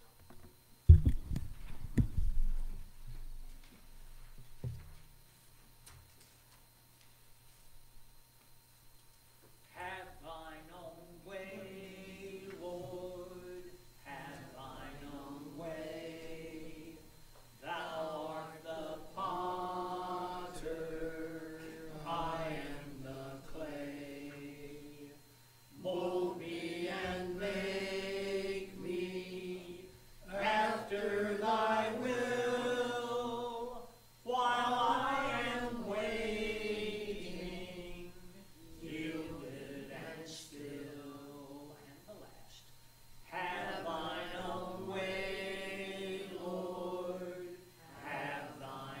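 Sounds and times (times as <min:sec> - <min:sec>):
congregation singing a hymn: 0:09.8 - 0:42.1, 0:43.0 - 0:49.0.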